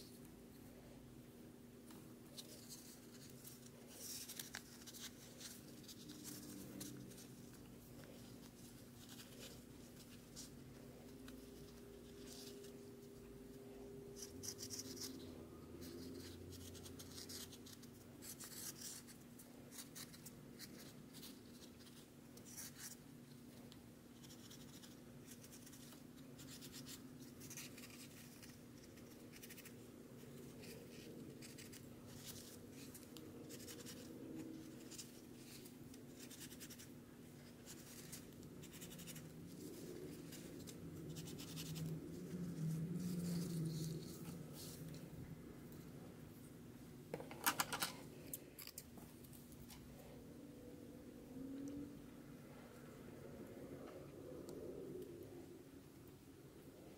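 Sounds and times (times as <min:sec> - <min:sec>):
steady low hum: 0:00.0 - 0:56.9
felt fabric scratching and rustling: 0:27.3 - 0:45.2.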